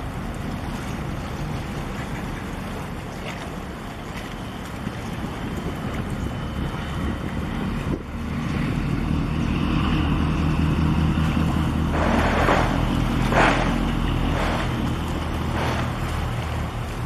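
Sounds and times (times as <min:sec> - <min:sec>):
ship diesel engines droning: 0:00.0 - 0:17.0
rushing surges of noise: 0:07.0 - 0:17.0.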